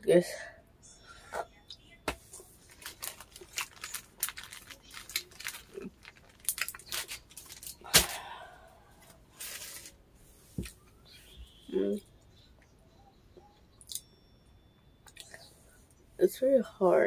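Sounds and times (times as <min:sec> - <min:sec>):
crunching mouth clicks: 0:13.8 - 0:14.1.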